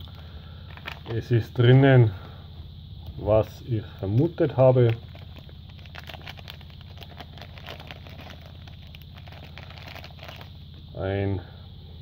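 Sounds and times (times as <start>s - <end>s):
low hum: 0.0s - 12.0s
plastic bag crinkling: 0.7s - 1.2s, 4.7s - 10.6s.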